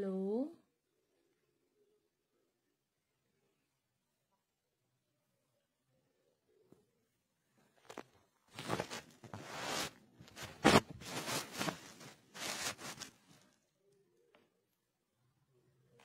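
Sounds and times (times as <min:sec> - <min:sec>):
phone rubbing against clothing: 0:08.6 - 0:13.4.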